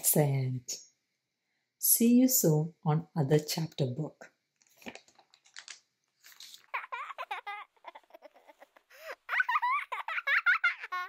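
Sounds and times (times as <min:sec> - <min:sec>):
paper rustle of book closing: 0:04.6 - 0:06.8
baby giggling and babbling: 0:06.7 - 0:10.1.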